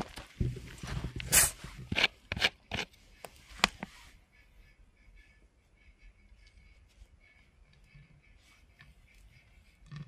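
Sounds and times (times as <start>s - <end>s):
bottle cap noisy burst: 1.3s - 1.6s.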